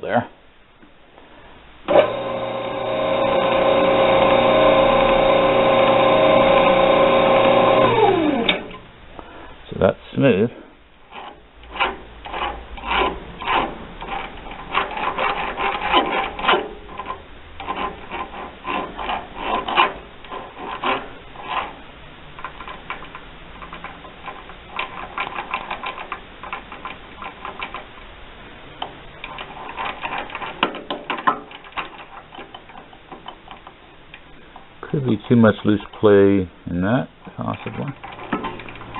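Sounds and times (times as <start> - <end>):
lathe gears clattering clicks: 1.9 - 8.8, 37.2 - 38.9.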